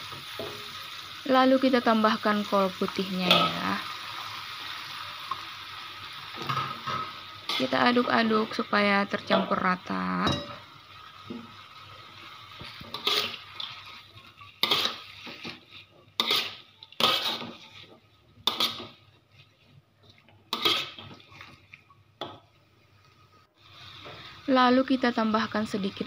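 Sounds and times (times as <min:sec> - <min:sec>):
metal spatula scraping a wok: 0:06.4 - 0:08.4, 0:12.6 - 0:19.8, 0:20.5 - 0:21.6.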